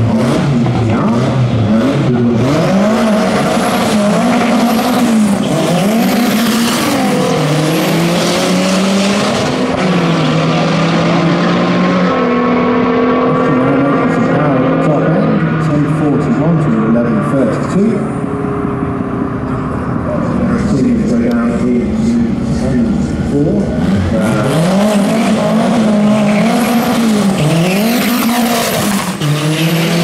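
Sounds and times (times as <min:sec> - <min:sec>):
cars launching at full throttle: 0:00.0 - 0:30.0
turbocharged engines revving: 0:00.0 - 0:30.0.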